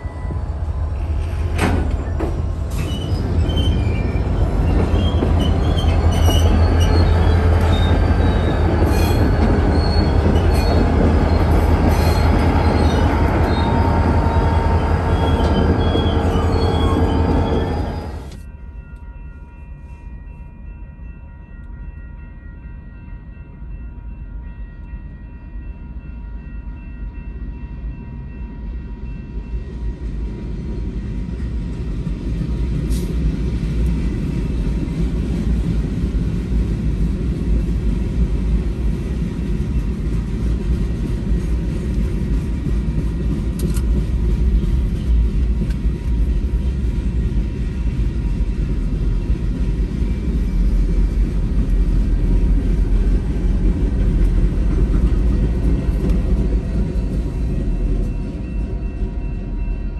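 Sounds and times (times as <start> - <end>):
freight train cars rolling: 0.0 - 18.5, 29.6 - 59.9
wheels squealing: 2.0 - 18.4.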